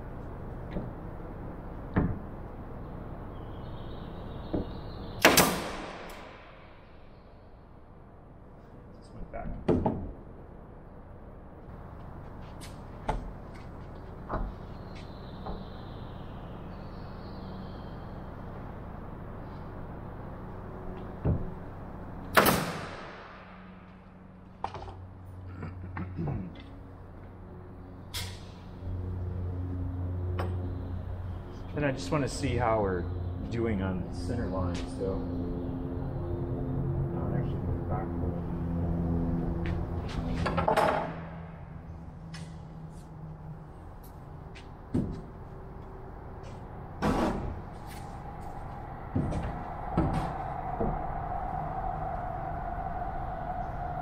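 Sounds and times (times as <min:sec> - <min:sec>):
steady low hum: 0:00.0 - 0:54.0
nail gun firing: 0:05.2 - 0:06.2, 0:22.3 - 0:23.3.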